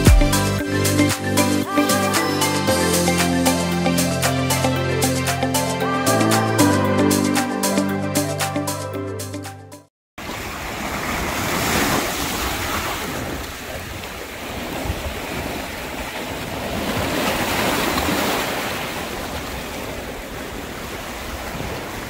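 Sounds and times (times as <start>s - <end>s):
waves breaking on rocks: 10.2s - 22.0s.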